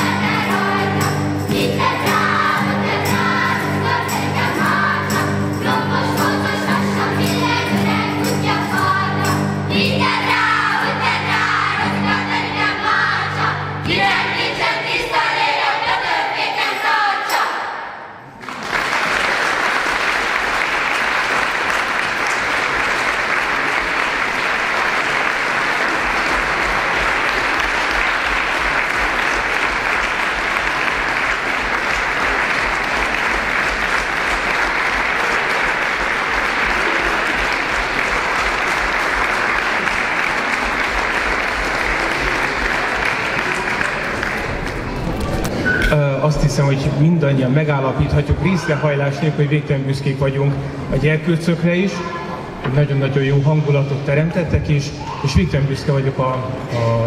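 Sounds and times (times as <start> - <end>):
guitar: 0.0 - 15.1
children's choir singing: 0.0 - 18.3, 19.8 - 44.2
audience applause: 18.2 - 45.6.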